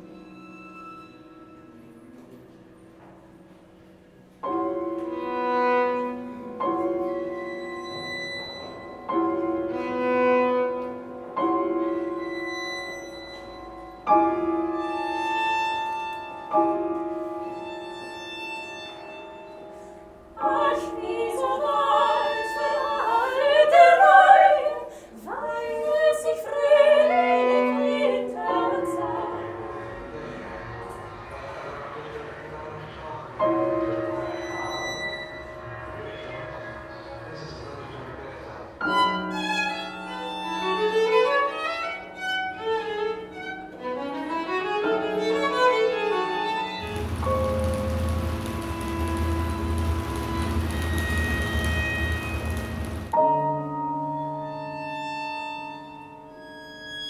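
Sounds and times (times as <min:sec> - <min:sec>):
classical music long held notes: 0:00.0 - 0:57.0
women singing classically: 0:20.4 - 0:29.7.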